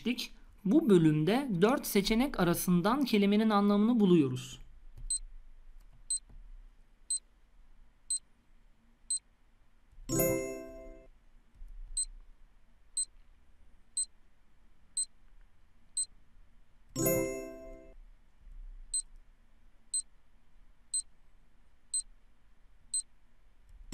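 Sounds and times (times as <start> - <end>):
electronic timer ticks: 5.0 - 5.2, 20.9 - 21.1.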